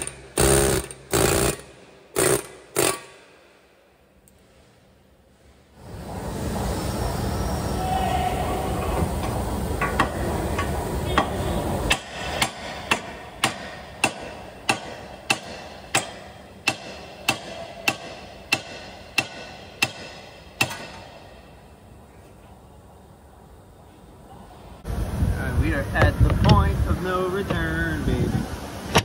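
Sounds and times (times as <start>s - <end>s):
hammer striking steel: 9.8s - 21.5s.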